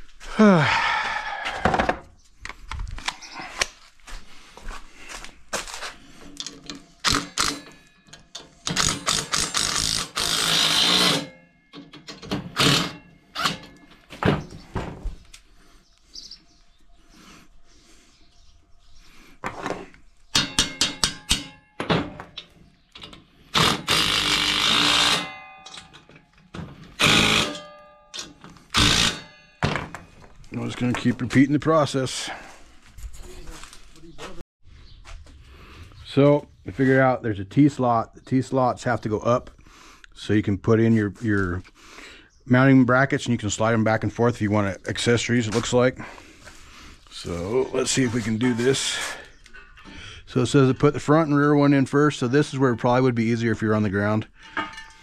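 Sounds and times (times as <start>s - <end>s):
impact driver hammering: 23.6s - 25.5s, 27.0s - 30.0s
metal rack parts clanking: 23.9s - 30.2s, 54.4s - 55.0s.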